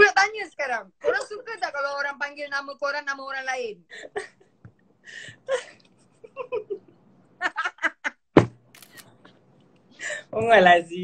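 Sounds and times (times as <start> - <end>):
woman laughing: 5.4 - 8.2.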